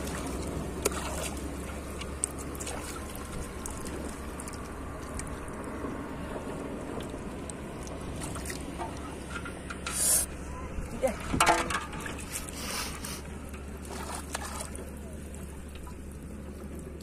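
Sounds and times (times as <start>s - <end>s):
water lapping and trickling: 0.0s - 17.0s.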